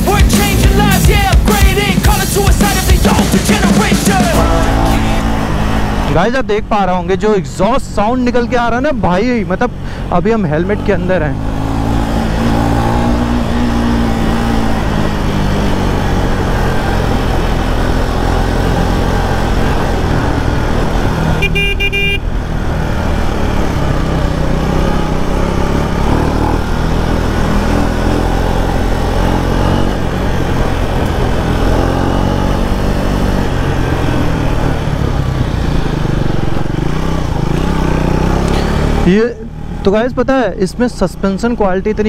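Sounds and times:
motorcycle engine running: 0.0s - 42.0s
vehicle horn: 21.4s - 22.4s.

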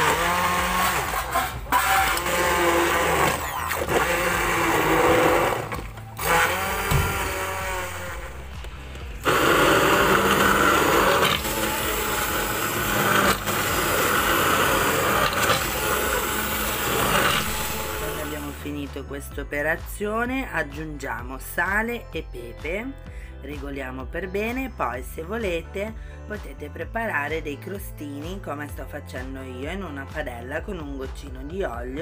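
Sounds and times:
immersion blender running: 0.0s - 18.8s.

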